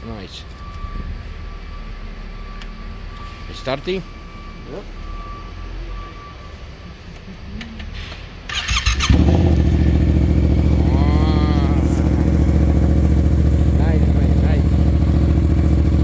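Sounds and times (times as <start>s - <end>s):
motorcycle engine cranking: 8.5s - 10.8s
motorcycle engine idling: 8.5s - 16.0s.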